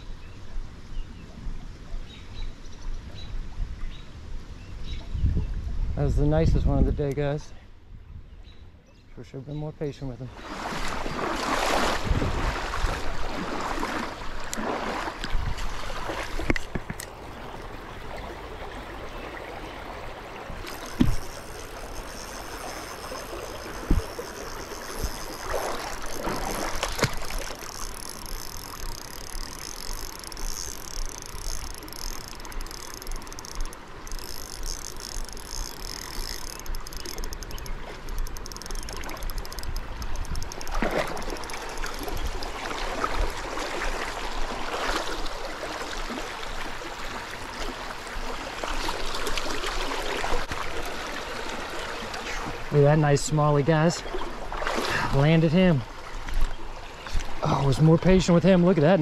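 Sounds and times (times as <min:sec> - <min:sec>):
creek water rippling over rocks: 0:09.9 - 0:59.0
sharp knocks: 0:23.8 - 0:24.2.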